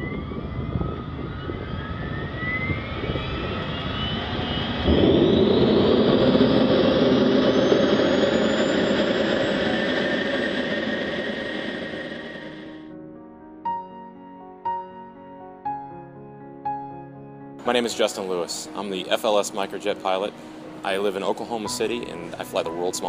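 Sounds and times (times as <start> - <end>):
jet engine roar: 0.0 - 12.9
jet turbine whine: 0.0 - 13.0, 17.6 - 23.0
sudden loud rush: 3.0 - 12.9.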